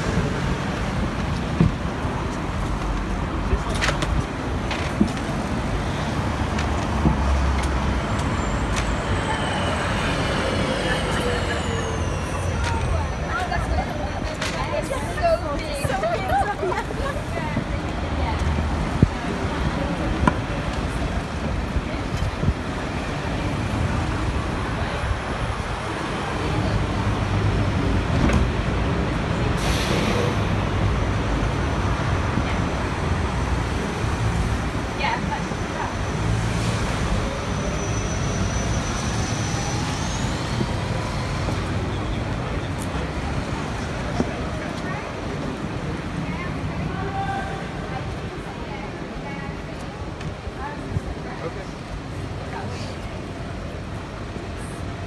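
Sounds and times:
road traffic engine rumble: 0.0s - 55.0s
bus engine whine: 7.4s - 14.1s.

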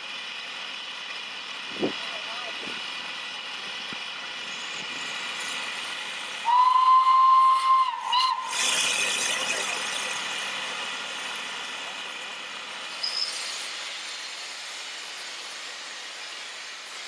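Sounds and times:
rush of escaping steam: 4.3s - 17.0s
steam locomotive whistle: 6.4s - 9.0s.

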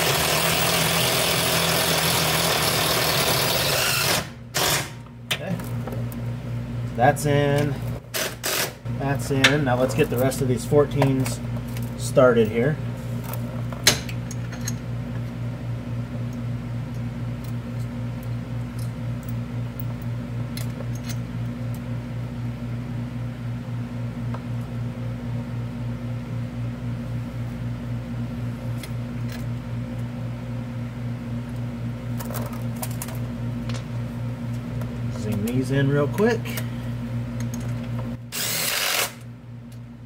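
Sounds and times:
mechanical fan humming: 0.0s - 40.0s.

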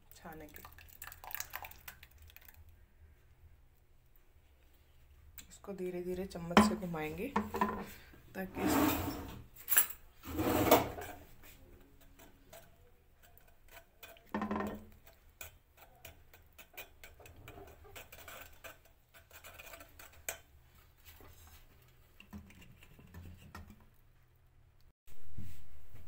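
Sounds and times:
spoon scraping in mesh strainer: 10.2s - 23.5s.

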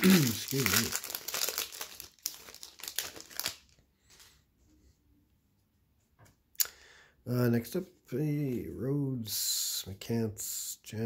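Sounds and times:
foil wrapper crinkling: 0.0s - 3.8s.

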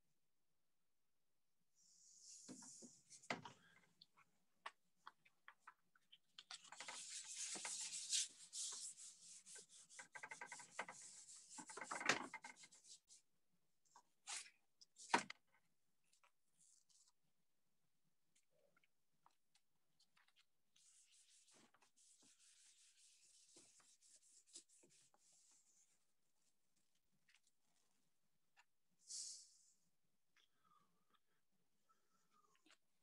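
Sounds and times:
hand rubbing sheet on canvas: 6.7s - 13.2s, 20.8s - 26.0s.

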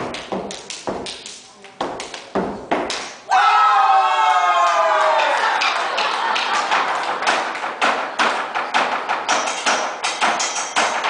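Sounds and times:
percussion on buckets and barrels: 0.0s - 3.2s, 5.6s - 11.0s.

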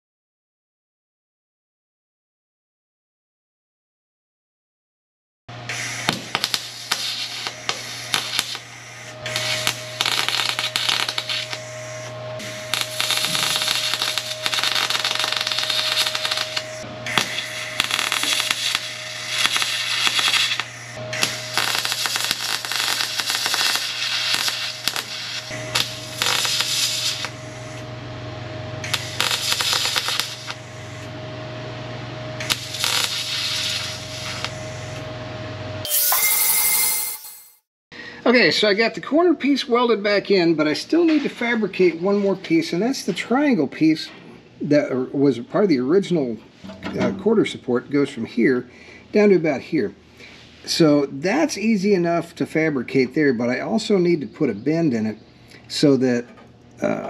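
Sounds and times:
welder arc crackling and hissing: 5.6s - 27.9s, 28.8s - 31.2s, 32.4s - 35.0s, 48.0s - 54.1s.

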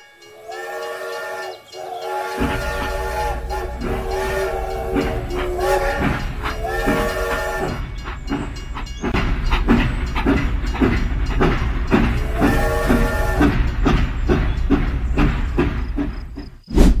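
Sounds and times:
toy train whistle toots: 0.0s - 7.9s, 12.2s - 13.6s
rhythmic electronic chuffing: 0.3s - 16.4s.

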